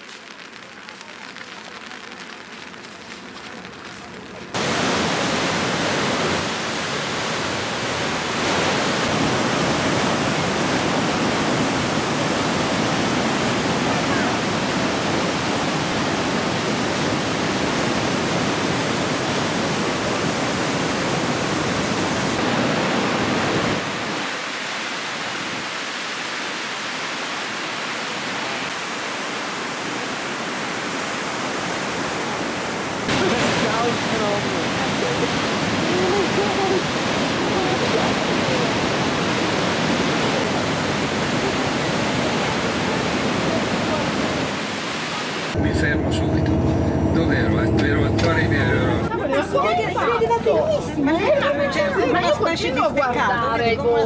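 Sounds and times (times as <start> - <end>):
whitewater rushing through gorge: 4.5 - 45.6.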